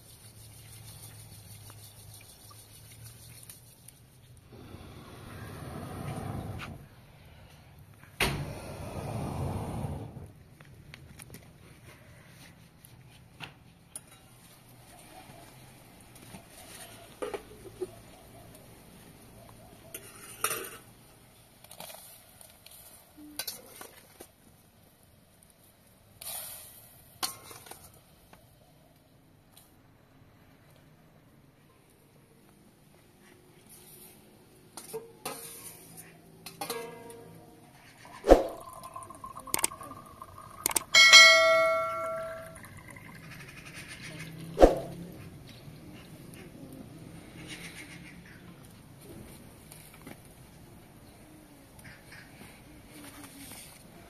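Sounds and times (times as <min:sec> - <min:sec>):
spoon clinking on metal: 0:38.6 - 0:43.2.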